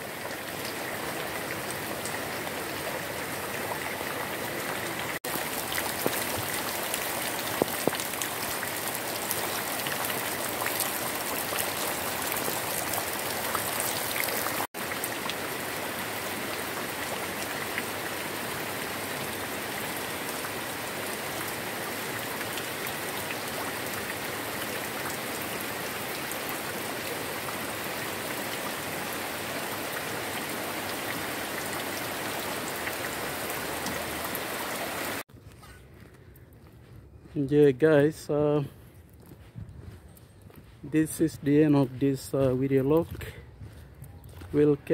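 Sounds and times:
rain falling on plants: 0:00.0 - 0:35.3
rainwater runoff trickling: 0:00.0 - 0:35.3.

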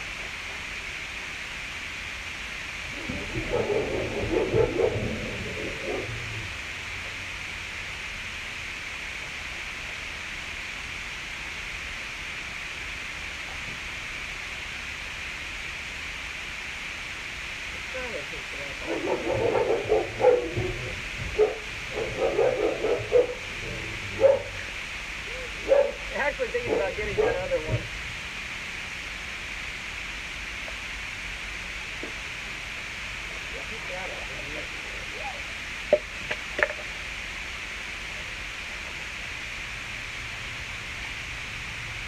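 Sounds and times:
outdoor background hiss: 0:00.0 - 0:42.0
dog barking: 0:03.2 - 0:06.3, 0:18.8 - 0:24.7, 0:25.5 - 0:27.8.

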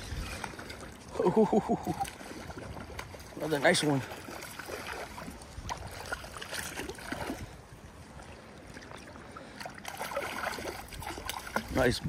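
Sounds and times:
rushing river water: 0:00.0 - 0:12.0
fish splashing at the surface: 0:04.0 - 0:07.6, 0:08.8 - 0:11.9.

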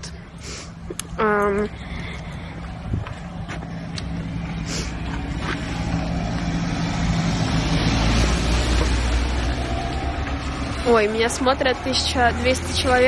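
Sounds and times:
vehicle passing close by: 0:01.7 - 0:13.0.

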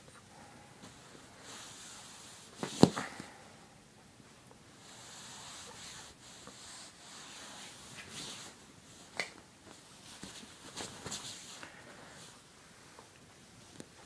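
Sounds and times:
fabric rustling on bedcover: 0:04.9 - 0:12.4.

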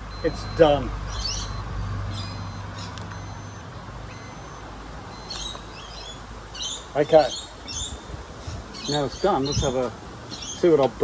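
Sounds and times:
steady low background hum: 0:00.0 - 0:08.8
faint short high beeps: 0:00.1 - 0:05.6
bird chirping: 0:00.2 - 0:10.8.

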